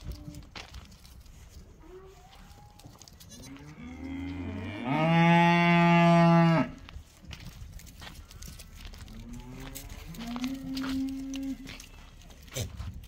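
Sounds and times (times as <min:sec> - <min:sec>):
farm animal long call: 0:01.8 - 0:06.8, 0:08.5 - 0:12.8.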